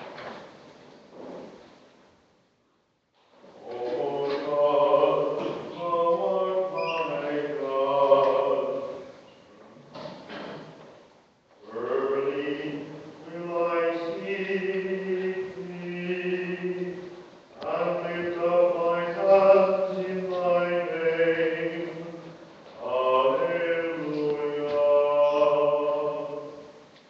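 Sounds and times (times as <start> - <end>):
voices singing a hymn: 3.6 - 9.1, 11.6 - 26.9.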